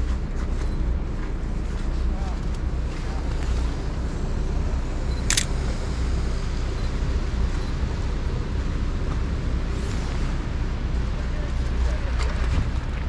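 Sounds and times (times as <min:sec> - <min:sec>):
street traffic rumble: 0:00.0 - 0:13.0
camera shutter click: 0:05.3 - 0:05.5.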